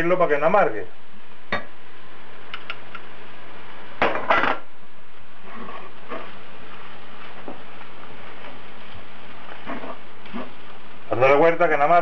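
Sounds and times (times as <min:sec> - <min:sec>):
wooden spoon scraping a frying pan: 0:05.4 - 0:10.6.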